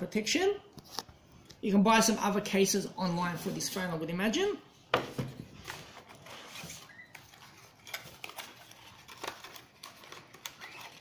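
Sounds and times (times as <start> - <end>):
packaging rustling: 5.5 - 11.0.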